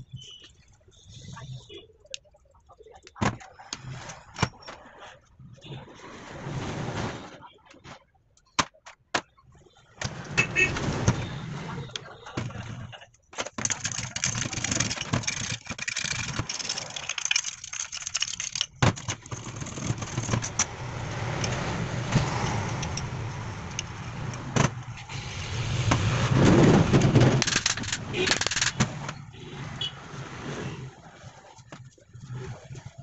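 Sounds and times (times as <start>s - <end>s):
metal parts clinking on workbench: 13.4s - 19.2s.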